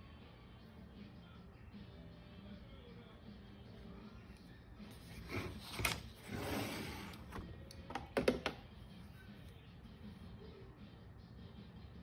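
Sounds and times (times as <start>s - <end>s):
board scraping on table: 5.0s - 7.4s.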